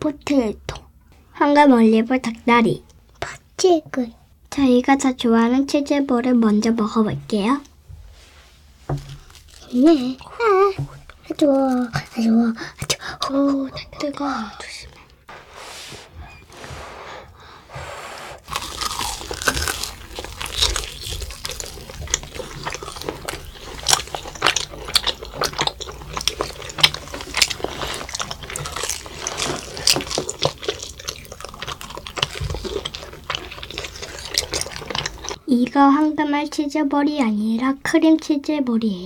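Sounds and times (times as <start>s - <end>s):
crunchy biting and chewing: 9.0s - 10.5s, 18.4s - 35.4s.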